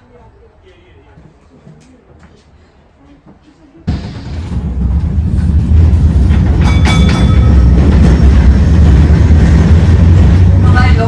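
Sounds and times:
tram wheels rumbling on rails: 3.3 - 11.0.

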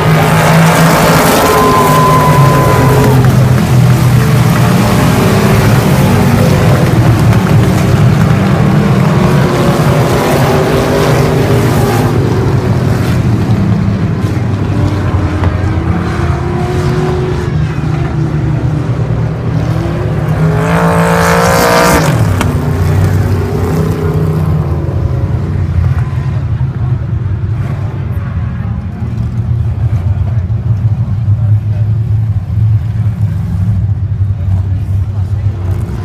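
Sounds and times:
race car passing close: 0.0 - 26.4
race car engines: 0.0 - 36.0.

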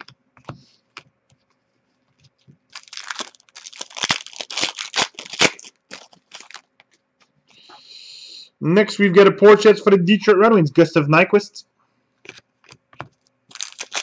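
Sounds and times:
trading cards shuffled by hand: 12.2 - 14.0.

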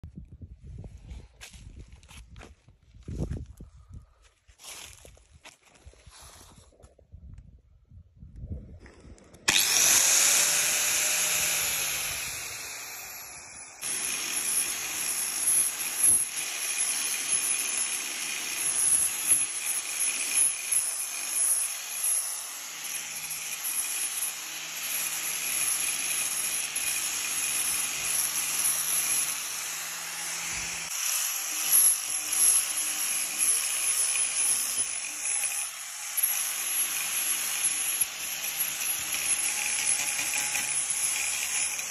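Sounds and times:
angle grinder sanding wood: 9.5 - 15.1, 26.4 - 41.9.

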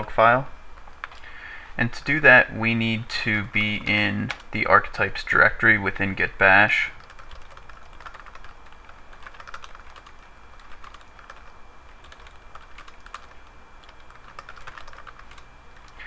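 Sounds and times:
computer keyboard typing: 7.0 - 16.0.

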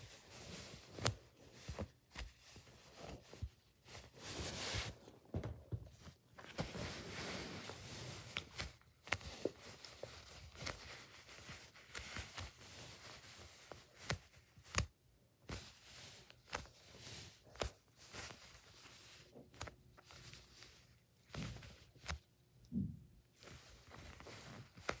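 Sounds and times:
foam toys rustling on fabric: 0.0 - 14.6.

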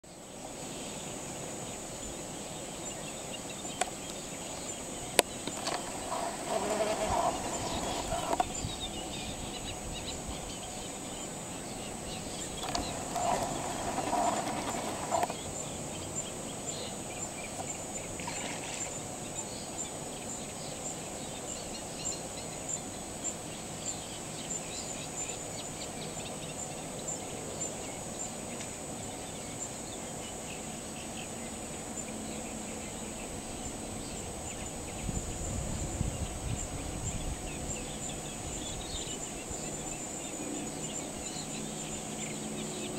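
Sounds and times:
distant animal calls chorus: 5.4 - 9.1, 12.0 - 15.4, 18.2 - 19.0.

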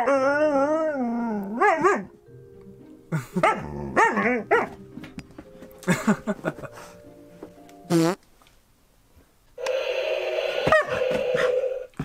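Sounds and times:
dog yipping and howling: 0.0 - 2.1.

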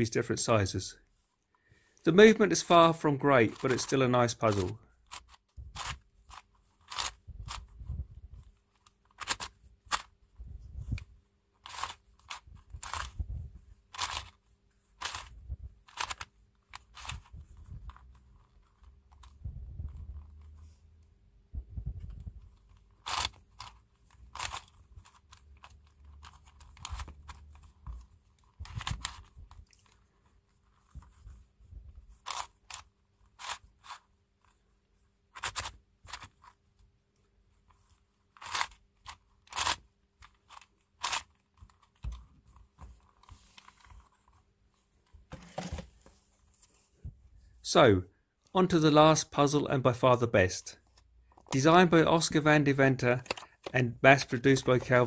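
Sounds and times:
plastic puzzle clicking and scraping: 2.5 - 10.2, 10.8 - 20.8, 22.0 - 34.6, 35.3 - 36.6, 37.5 - 46.8, 50.8 - 55.0.

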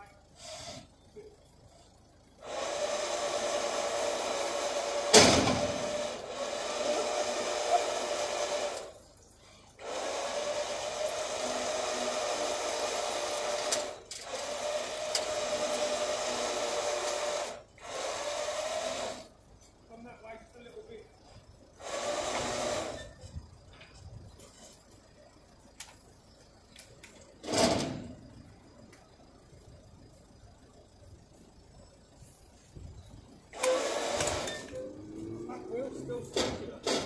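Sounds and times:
electric winch motor whining: 0.0 - 1.0, 1.9 - 19.4, 21.2 - 23.4, 33.3 - 37.0.

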